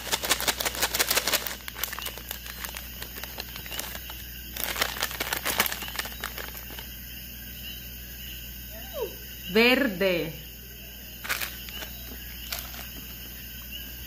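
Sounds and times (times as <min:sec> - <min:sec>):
candies rattling in bag: 0:00.0 - 0:06.9, 0:11.2 - 0:13.2
plastic bag crinkling: 0:00.0 - 0:06.9, 0:11.2 - 0:13.3.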